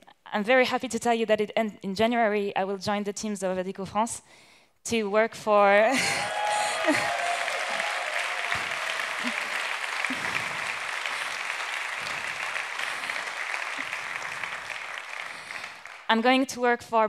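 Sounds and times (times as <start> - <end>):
audience applauding: 6.0 - 16.2.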